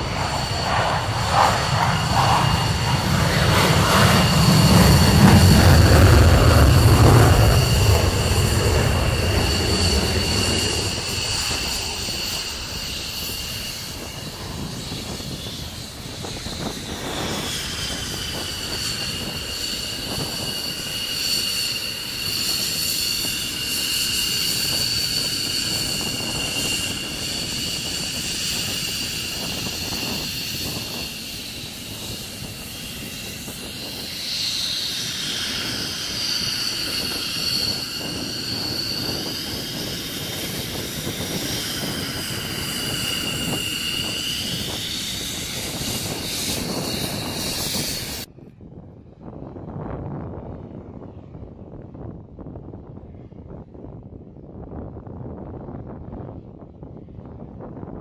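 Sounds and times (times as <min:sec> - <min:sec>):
low rumble: 0:00.0 - 0:15.6
jet engines whining: 0:00.0 - 0:48.3.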